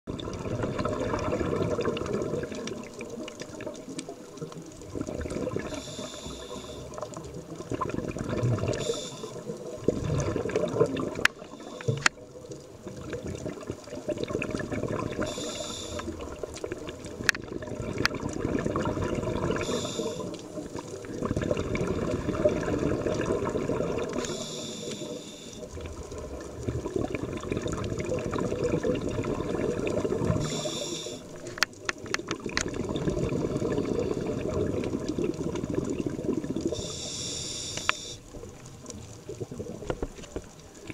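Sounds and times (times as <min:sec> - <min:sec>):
exhaled bubbles rumbling: 0:00.1 - 0:24.8, 0:25.6 - 0:37.4, 0:38.2 - 0:40.9
regulator inhalation hiss: 0:05.7 - 0:07.0, 0:08.8 - 0:09.5, 0:11.4 - 0:12.1, 0:15.2 - 0:16.3, 0:19.6 - 0:20.5, 0:24.1 - 0:25.7, 0:30.3 - 0:31.5, 0:36.7 - 0:38.2.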